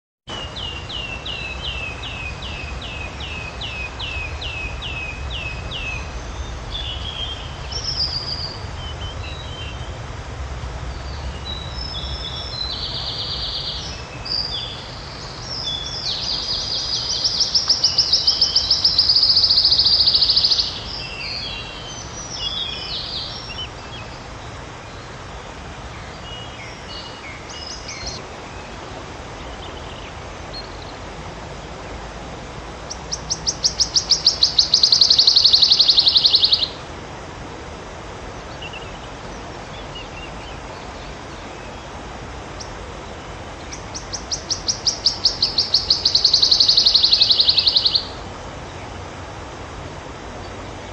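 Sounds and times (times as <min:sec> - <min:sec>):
bird singing trill: 0:00.3 - 0:10.0, 0:10.9 - 0:24.2, 0:26.0 - 0:28.7, 0:32.9 - 0:36.8, 0:43.6 - 0:48.2
bird chirps: 0:11.0 - 0:24.2, 0:32.9 - 0:36.8, 0:43.7 - 0:48.2.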